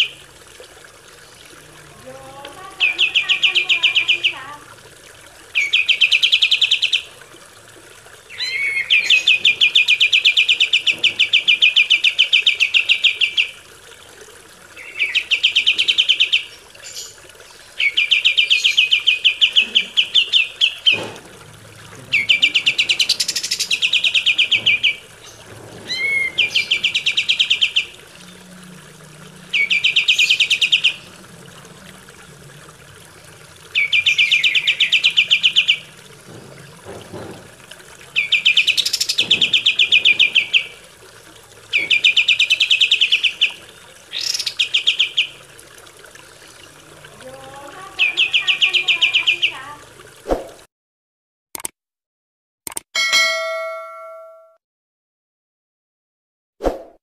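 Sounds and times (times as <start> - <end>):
bird singing rattling trills: 1.2 - 4.6, 8.3 - 13.5, 22.0 - 28.6, 29.4 - 31.2, 33.7 - 37.3, 38.1 - 40.8, 41.7 - 45.4.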